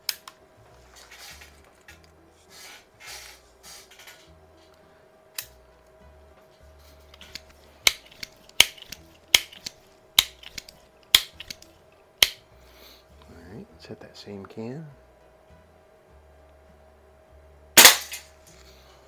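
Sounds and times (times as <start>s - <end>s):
air pistol click: 7.1s - 12.4s.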